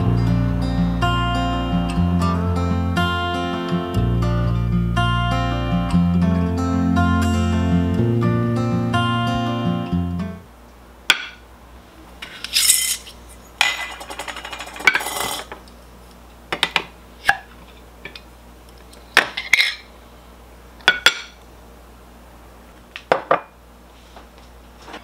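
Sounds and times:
metal spoon scraping jar lid: 12.4s - 15.5s.

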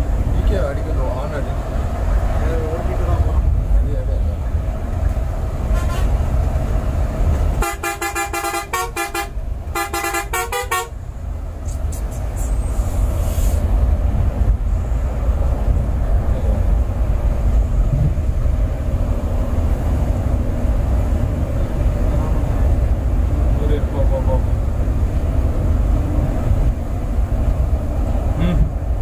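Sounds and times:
bus engine rumble: 0.0s - 29.0s
road noise: 0.0s - 29.0s
multi-tone vehicle horn honking: 5.7s - 6.2s, 7.6s - 11.0s.

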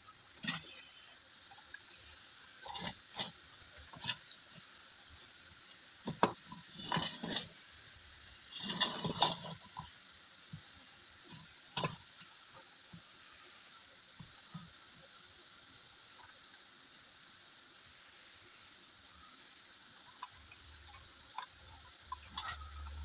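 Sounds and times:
faint steady hiss: 0.0s - 23.0s
rustling: 8.5s - 9.9s.

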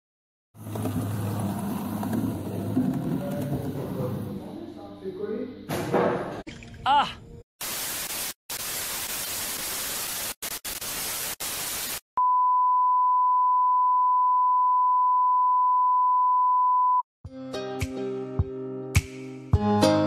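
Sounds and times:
single-pitch test tone: 12.2s - 17.0s.

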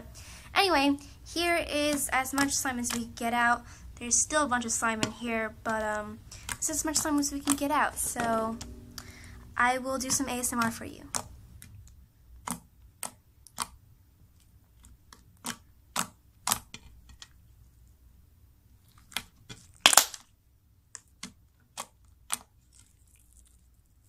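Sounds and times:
slime squished by hand: 18.9s - 20.2s.

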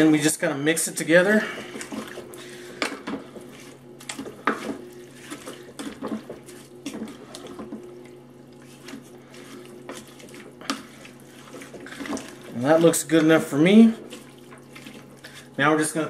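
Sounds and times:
wet sloshing and stirring: 1.0s - 16.0s.

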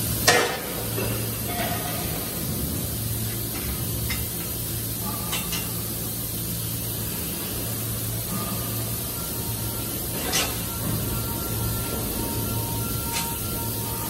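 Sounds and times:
workshop hum and hiss: 0.0s - 14.0s
metallic ringing: 8.2s - 14.0s.

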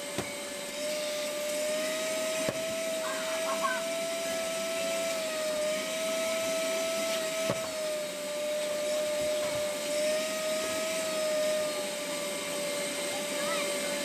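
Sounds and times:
small electric motor whining: 0.0s - 14.0s.

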